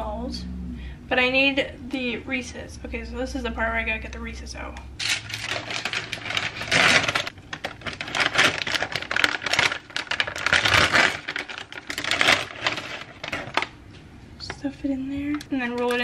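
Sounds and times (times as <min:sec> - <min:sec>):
plastic bag crinkling: 0:05.0 - 0:13.8.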